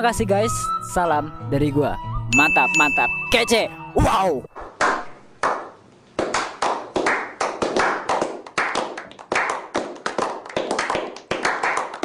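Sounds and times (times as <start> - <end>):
people clapping: 4.7 - 12.0.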